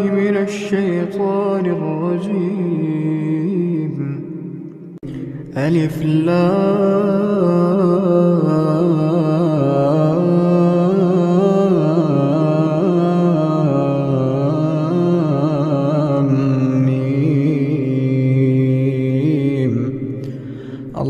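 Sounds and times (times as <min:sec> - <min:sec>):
man reciting melodically: 0:00.0 - 0:21.0.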